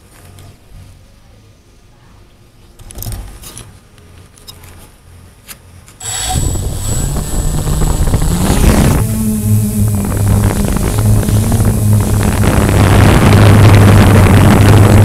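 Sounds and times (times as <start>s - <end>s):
propeller wash on microphone: 6.0s - 15.0s
quadcopter motors whirring: 6.0s - 15.0s.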